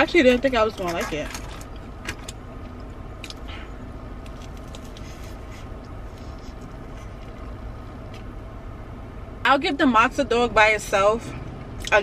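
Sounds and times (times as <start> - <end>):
low hum inside car: 0.0 - 12.0
chewing and crunching food: 1.0 - 8.3.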